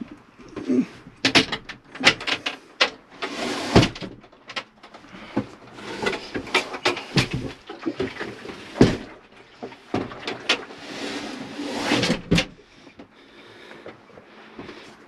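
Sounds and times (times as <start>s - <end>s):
wooden knocks and clatters: 0.0s - 10.8s, 11.9s - 13.1s
wood scraping: 0.0s - 12.9s.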